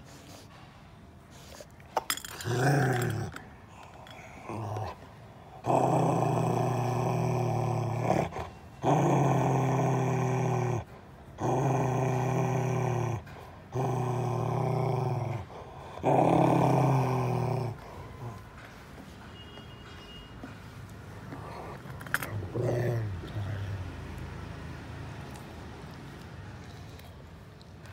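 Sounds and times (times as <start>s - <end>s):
dog growling: 2.1s - 18.4s, 21.2s - 24.4s.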